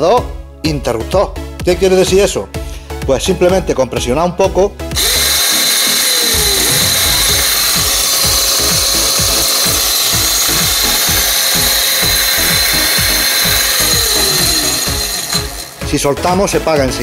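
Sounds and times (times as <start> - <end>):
electric saw motor whining: 5.0 - 16.3.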